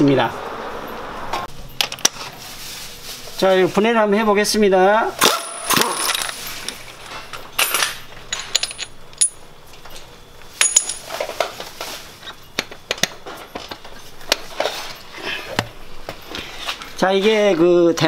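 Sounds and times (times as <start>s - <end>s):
metal tools clinking: 5.2s - 15.4s.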